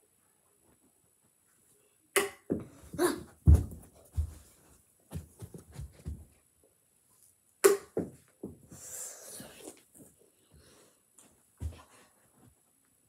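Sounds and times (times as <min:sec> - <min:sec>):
footsteps and thumps: 0:02.5 - 0:06.4, 0:11.6 - 0:12.6.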